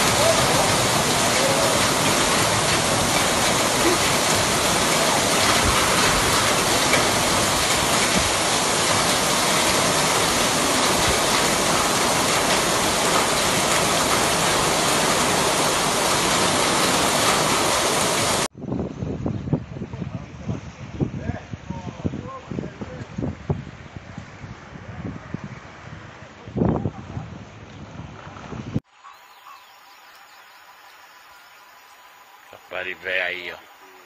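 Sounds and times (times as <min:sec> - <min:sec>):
torrential rain pouring: 0:00.0 - 0:18.5, 0:31.6 - 0:34.0.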